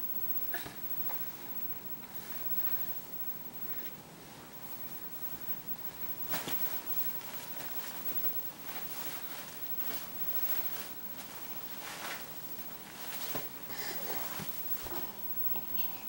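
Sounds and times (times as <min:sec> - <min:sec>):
fabric rustling: 0:05.9 - 0:15.5.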